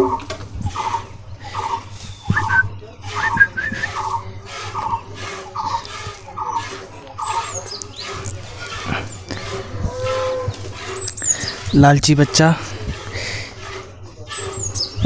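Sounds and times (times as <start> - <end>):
high bird chirps: 0.0 - 8.2
bird repeated call: 0.0 - 15.0.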